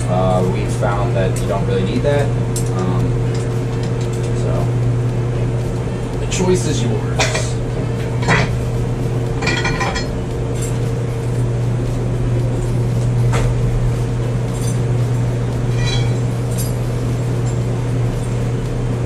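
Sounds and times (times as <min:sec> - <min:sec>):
low machine hum: 0:00.0 - 0:19.0
metallic clinks of tools: 0:15.7 - 0:16.8.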